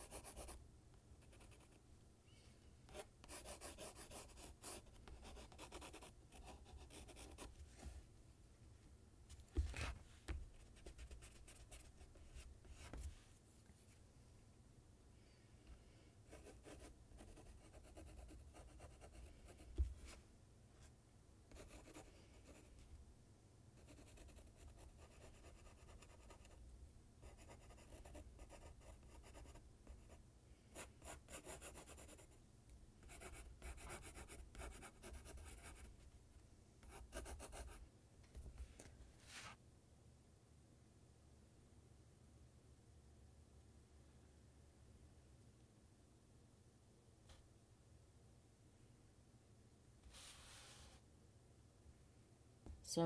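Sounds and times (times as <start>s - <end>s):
pencil scratching on paper: 0.0s - 0.6s, 2.9s - 7.5s, 10.8s - 13.1s, 16.3s - 19.8s, 21.5s - 22.6s, 23.8s - 26.6s, 27.2s - 30.2s, 30.8s - 32.3s, 33.0s - 35.9s, 36.8s - 37.8s.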